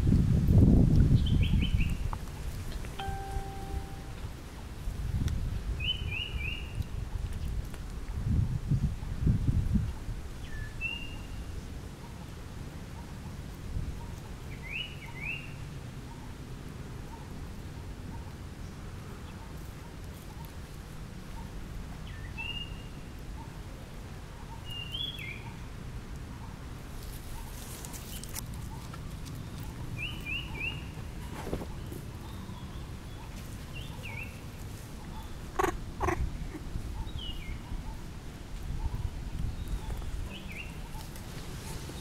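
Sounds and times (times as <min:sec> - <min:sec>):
crackling rustle: 0:01.8 - 0:03.0, 0:06.8 - 0:08.3, 0:19.1 - 0:21.9, 0:26.1 - 0:32.4, 0:33.2 - 0:35.7, 0:37.8 - 0:42.0
short high chirps: 0:03.0 - 0:04.3.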